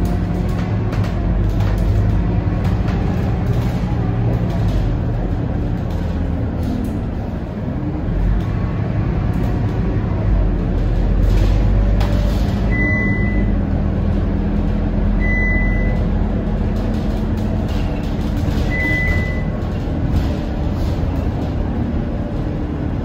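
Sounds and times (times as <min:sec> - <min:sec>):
bus engine and road noise: 0:00.0 - 0:23.0
short beeps: 0:12.7 - 0:13.5, 0:15.2 - 0:16.0, 0:18.7 - 0:19.5.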